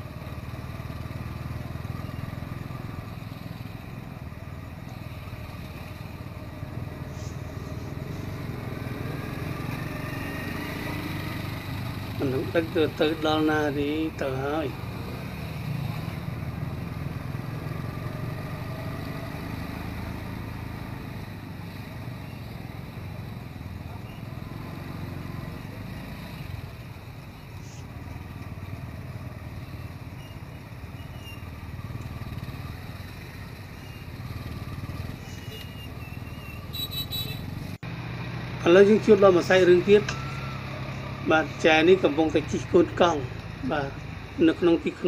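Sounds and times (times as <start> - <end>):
city street traffic: 0.0 - 45.0.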